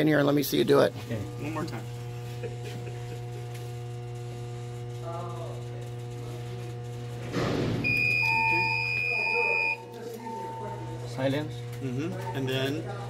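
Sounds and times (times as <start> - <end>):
steady low hum: 0.2 - 13.0
lower pulsing beep: 7.8 - 11.0
alarm buzzer high tone: 7.8 - 12.2.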